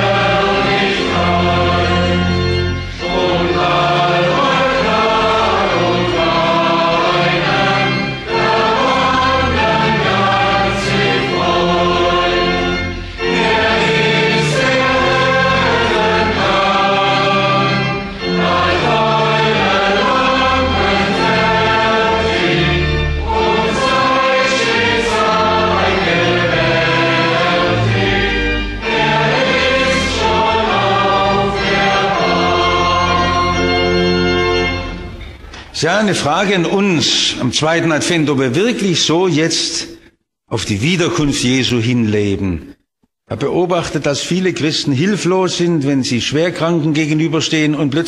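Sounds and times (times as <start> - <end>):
congregation singing a hymn: 0.0 - 39.4
organ accompaniment: 0.0 - 48.0.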